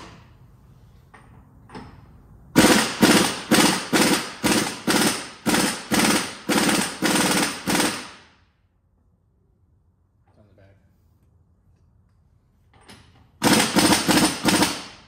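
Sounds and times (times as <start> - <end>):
impact wrench hammering: 2.6 - 8.2, 13.4 - 15.0.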